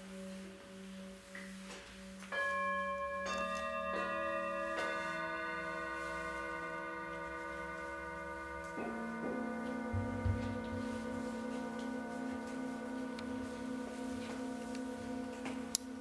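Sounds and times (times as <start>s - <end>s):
singing bowls ringing: 0.0s - 16.0s.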